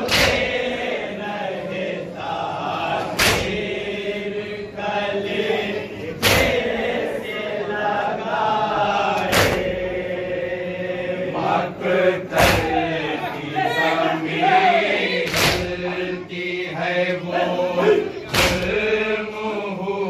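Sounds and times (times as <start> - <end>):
men chanting a lament in unison: 0.0 - 20.0
hands slapping chests: 0.1 - 0.6, 3.1 - 3.6, 15.2 - 15.8, 18.3 - 18.8.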